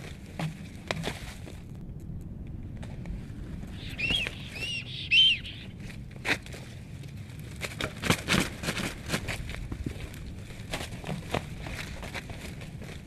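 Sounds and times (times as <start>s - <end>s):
sticks cracking and knocking: 0.0s - 3.1s, 6.2s - 13.0s
wings flapping: 3.6s - 6.0s
stork call: 3.7s - 5.8s.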